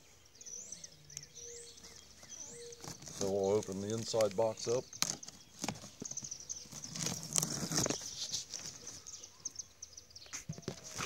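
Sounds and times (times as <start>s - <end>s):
cardboard flaps rustling: 1.8s - 9.1s, 10.5s - 11.0s.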